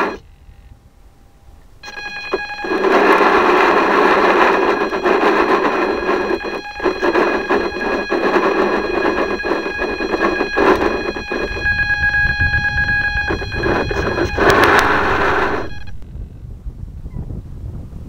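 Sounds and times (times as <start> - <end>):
small electric motor whining: 1.8 - 16.0.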